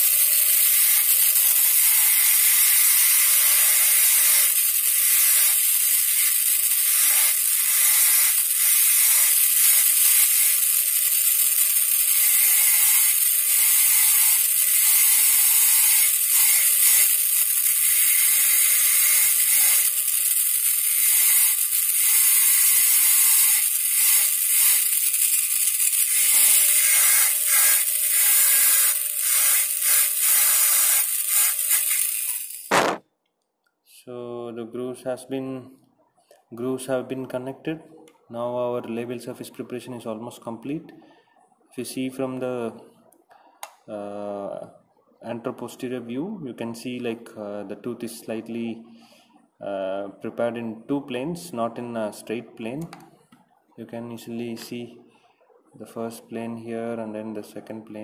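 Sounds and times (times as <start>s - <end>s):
dental drill whining: 0.0s - 33.0s.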